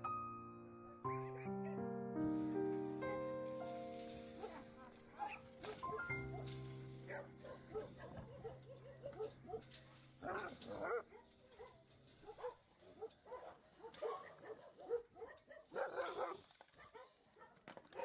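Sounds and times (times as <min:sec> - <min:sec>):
dogs barking and yelping: 0:01.1 - 0:01.8, 0:04.4 - 0:18.0.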